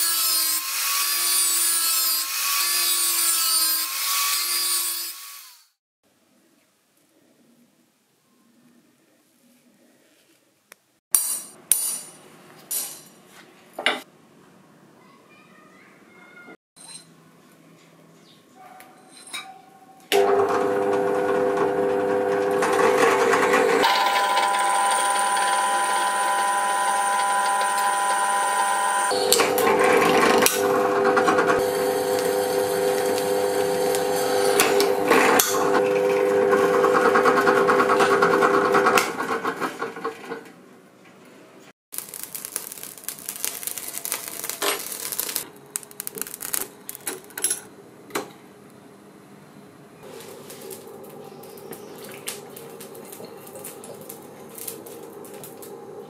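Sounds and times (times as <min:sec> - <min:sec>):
electric drill whining: 0:23.5 - 0:35.1
irregular clicks and crackling: 0:41.9 - 0:47.5, 0:50.5 - 0:55.8.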